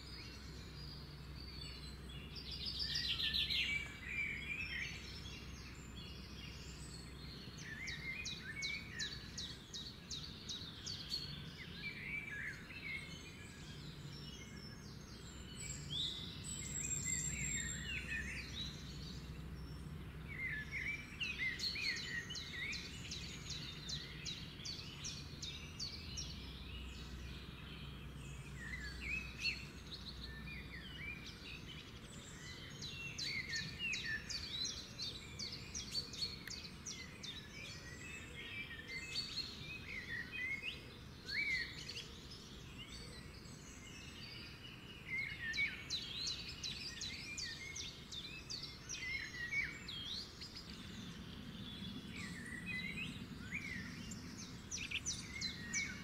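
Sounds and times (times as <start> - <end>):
birds chirping and singing: 0.0 - 56.0.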